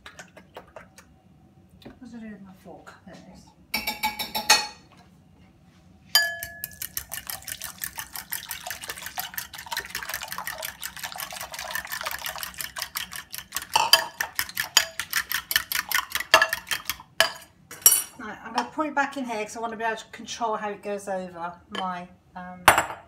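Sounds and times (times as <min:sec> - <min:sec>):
fork clicking against glass bowl: 0:06.2 - 0:07.3
liquid sloshing: 0:06.6 - 0:17.0.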